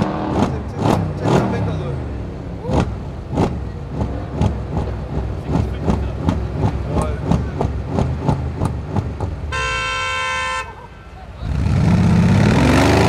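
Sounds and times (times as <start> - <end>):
car engine low rumble: 0.0 - 13.0
exhaust pops and crackles: 2.6 - 9.6.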